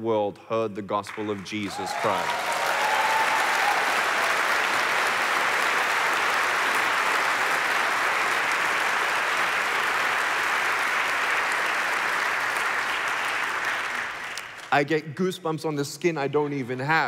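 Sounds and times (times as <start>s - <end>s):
audience applauding: 1.1s - 14.7s.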